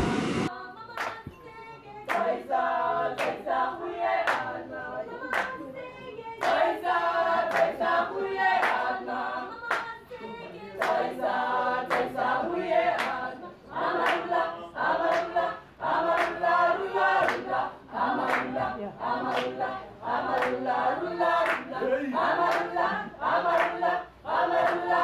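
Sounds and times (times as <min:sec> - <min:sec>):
hand claps: 0:01.0 - 0:01.4, 0:02.1 - 0:02.4, 0:03.2 - 0:03.4, 0:04.2 - 0:04.5, 0:05.3 - 0:05.6, 0:06.4 - 0:06.7, 0:07.5 - 0:07.8, 0:08.6 - 0:08.9, 0:09.6 - 0:10.0, 0:10.8 - 0:11.1, 0:11.9 - 0:12.2, 0:13.0 - 0:13.2, 0:14.0 - 0:14.4, 0:15.0 - 0:15.4, 0:16.1 - 0:16.5, 0:17.2 - 0:17.5, 0:18.2 - 0:18.7, 0:19.3 - 0:19.6, 0:20.3 - 0:20.7, 0:21.4 - 0:21.8, 0:22.4 - 0:23.8, 0:24.6 - 0:24.9
choir singing: 0:01.8 - 0:25.0.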